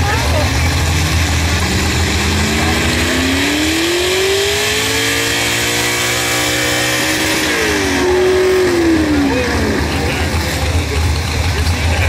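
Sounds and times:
truck engine under load: 0.0s - 12.0s.

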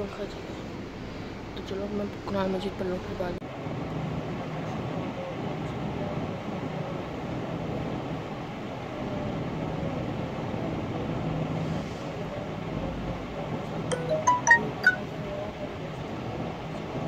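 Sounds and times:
short high clinking notes: 13.9s - 15.0s.

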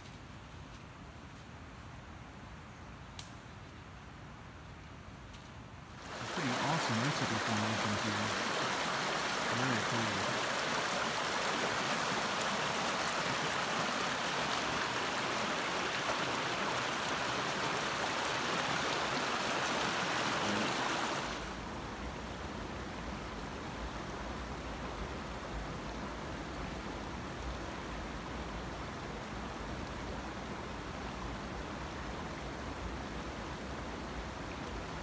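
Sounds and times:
water rushing over stones: 6.0s - 21.6s.

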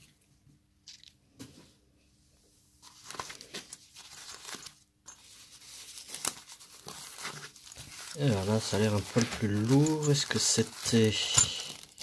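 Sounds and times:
foam packing sleeve rustling: 2.9s - 12.0s.

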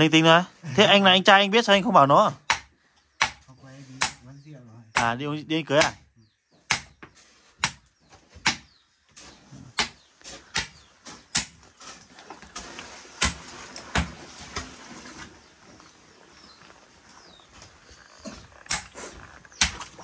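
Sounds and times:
stones knocking: 9.8s - 15.9s, 18.2s - 20.0s.

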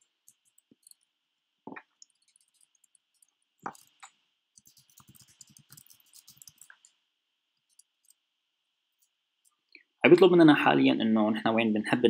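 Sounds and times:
computer keyboard typing: 0.0s - 1.1s, 1.8s - 7.0s, 7.6s - 8.2s.

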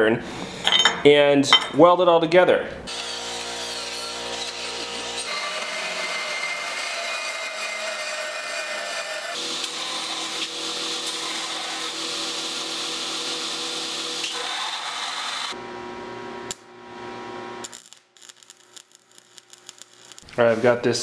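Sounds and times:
bandsaw cutting sheet metal: 2.9s - 15.6s
belt grinder humming and hissing: 2.9s - 15.7s.

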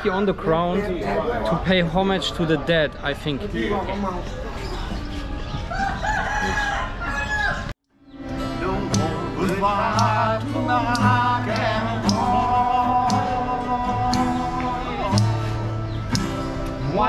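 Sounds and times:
rooster crowing: 5.7s - 7.7s
acoustic guitar strumming: 8.0s - 17.0s
men singing in a group: 8.5s - 15.6s.

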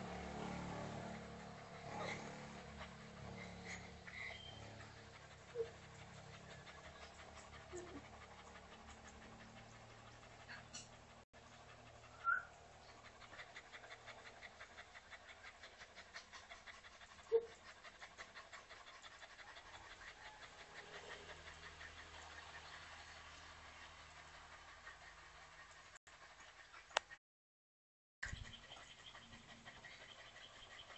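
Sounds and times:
dog panting: 0.0s - 27.2s, 28.2s - 30.9s.

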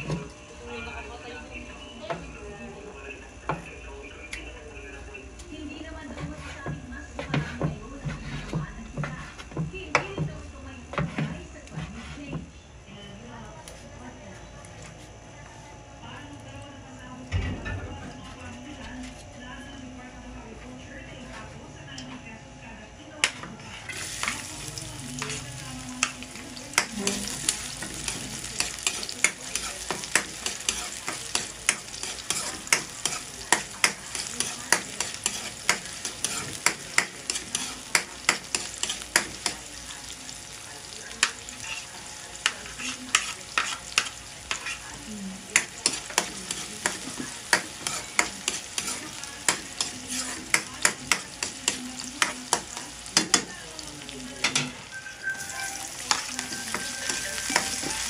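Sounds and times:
spatula tapping and scraping pan: 6.1s - 10.3s, 10.9s - 12.4s, 26.0s - 39.7s, 42.4s - 44.8s, 45.5s - 53.5s, 55.6s - 58.0s
onion sizzling in hot oil: 23.9s - 58.0s.

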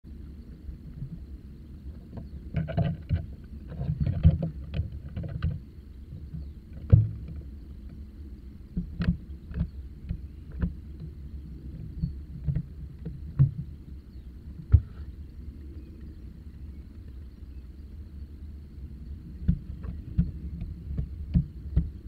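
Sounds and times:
steady low rumble: 0.0s - 22.0s
low thumps: 14.6s - 15.1s
knocks and taps: 19.4s - 22.0s.

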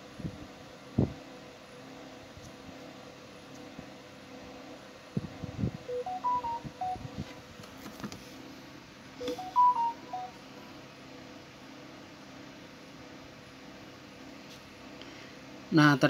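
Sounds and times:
electronic beep tune: 5.9s - 7.0s, 9.2s - 10.4s.

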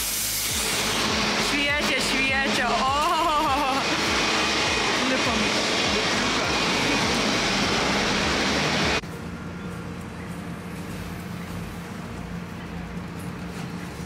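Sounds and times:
loud rushing noise: 0.0s - 9.0s
bus engine humming: 0.2s - 14.0s.

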